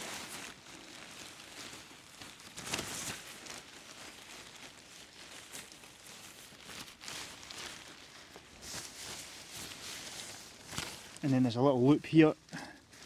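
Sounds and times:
tent fabric rustling: 0.0 - 13.0.

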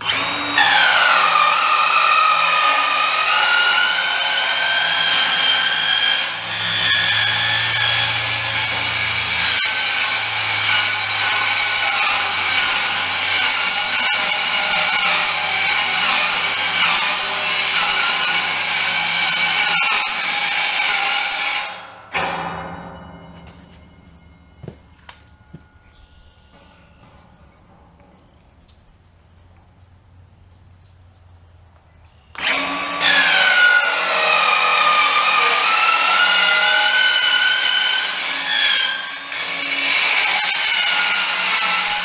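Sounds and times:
circular saw cutting sheet steel: 0.0 - 23.0, 32.4 - 42.0.

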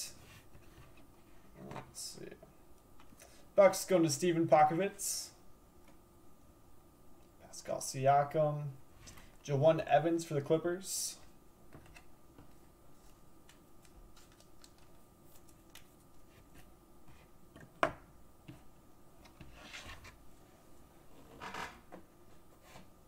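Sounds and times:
card rustles: 11.8 - 16.7.

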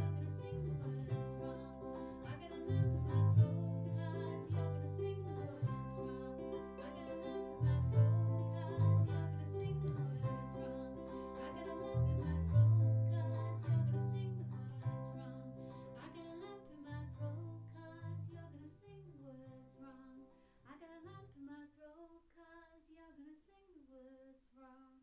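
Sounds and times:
bass notes: 0.0 - 19.7
strummed ukulele: 0.0 - 19.8
woman singing: 0.0 - 25.0.

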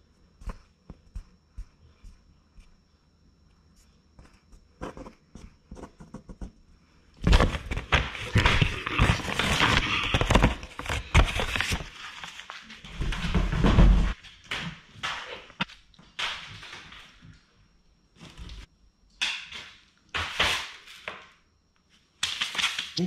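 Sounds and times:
packing paper crinkling: 7.2 - 12.8.

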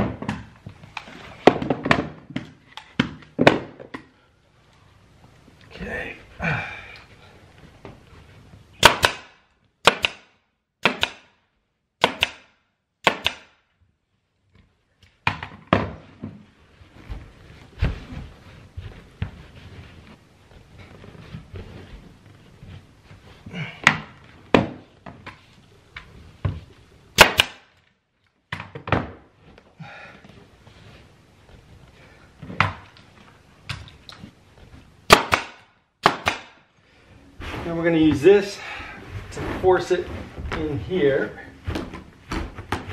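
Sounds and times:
air stapler firing: 8.8 - 11.3, 12.0 - 13.6, 27.2 - 27.7, 35.1 - 36.6
carpet rustling: 16.0 - 27.1, 29.3 - 35.0, 36.8 - 42.9.

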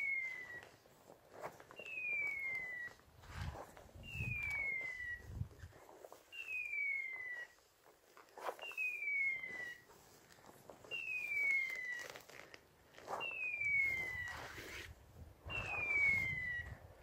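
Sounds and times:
footsteps rustling through grass: 0.0 - 17.0
collar beeper falling whistle: 4.0 - 5.4, 6.4 - 7.6, 8.6 - 9.8, 13.2 - 14.7, 15.5 - 16.8.

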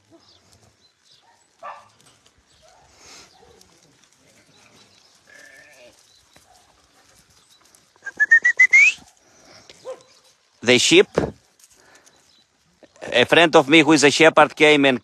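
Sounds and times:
goat bleating: 5.3 - 6.1.

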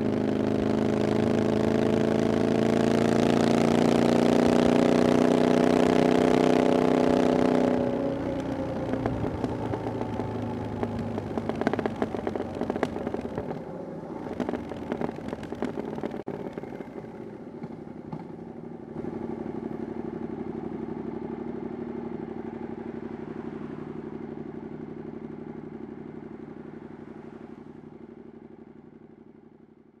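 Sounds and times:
motorcycle engine running: 0.0 - 30.0
exhaust crackles: 7.3 - 21.1.

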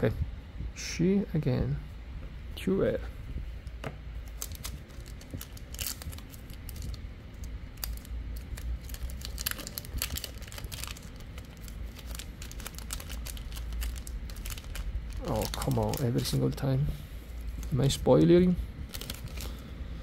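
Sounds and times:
trading cards being handled: 3.7 - 19.6
card pack wrapper crinkling: 4.2 - 16.7, 18.9 - 19.6.

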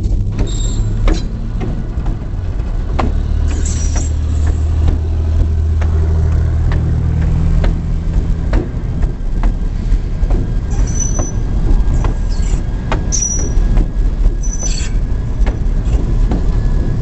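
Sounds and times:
diesel locomotive engine drone: 0.0 - 17.0
wheels clicking over rail joints: 0.0 - 17.0
high squeal: 0.4 - 1.0, 3.5 - 4.2, 10.7 - 11.5, 12.2 - 13.6, 14.4 - 15.0.

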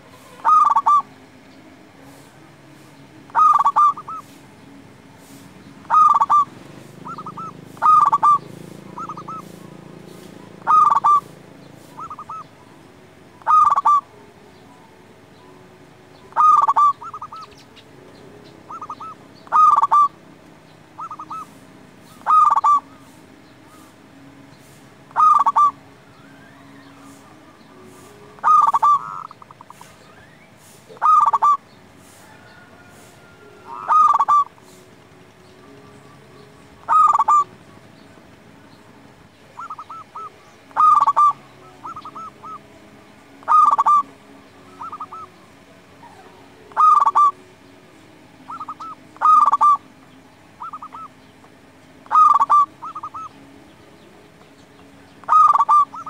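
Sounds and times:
dove stuttering coo: 0.0 - 1.1, 3.3 - 4.3, 5.8 - 12.5, 13.4 - 14.1, 16.3 - 17.5, 18.7 - 20.2, 21.0 - 23.8, 25.1 - 25.8, 28.0 - 30.0, 30.9 - 31.6, 33.7 - 35.1, 36.8 - 37.6, 39.6 - 42.6, 43.4 - 44.1, 44.8 - 45.4, 46.0 - 47.4, 48.5 - 49.8, 52.0 - 53.3, 55.2 - 56.0
soft dove trills: 0.0 - 56.0.

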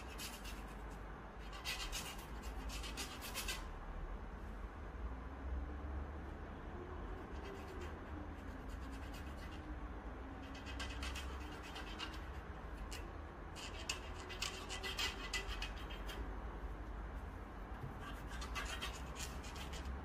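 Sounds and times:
steady low hum: 0.0 - 20.0
hands scratching and clicking parts: 10.4 - 16.2, 17.8 - 20.0.

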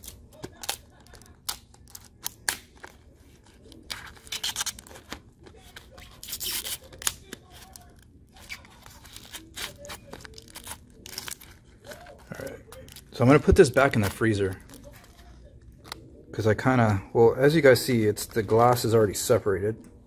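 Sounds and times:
tape and glass crinkling: 0.0 - 15.9.

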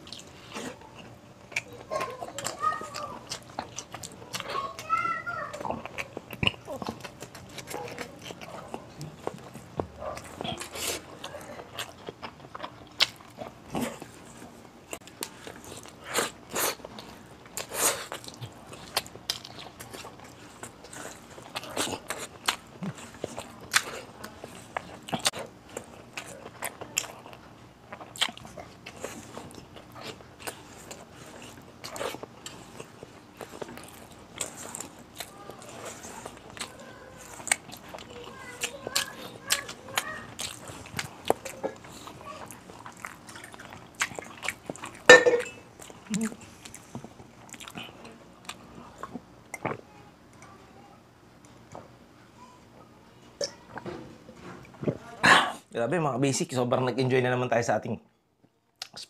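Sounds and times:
wet chewing: 0.0 - 50.6, 58.8 - 59.0
lip smacks: 58.8 - 59.0.

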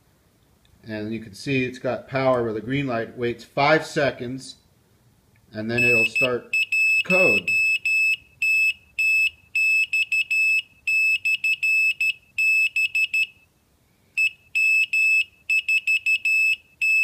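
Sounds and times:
morse code beeping: 5.8 - 13.4, 14.2 - 17.0.

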